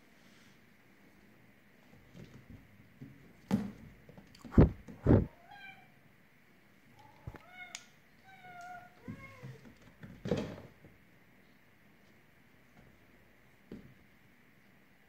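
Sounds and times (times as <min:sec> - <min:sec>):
cat meowing: 0:05.2 - 0:06.0.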